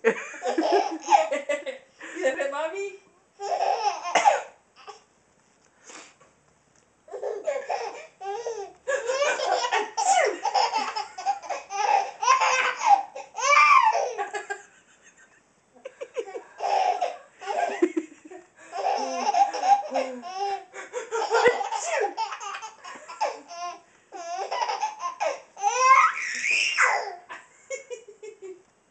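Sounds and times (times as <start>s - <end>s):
baby laughing: 0.4s - 1.4s, 3.4s - 5.0s, 7.1s - 14.6s, 15.8s - 18.0s, 18.7s - 28.0s.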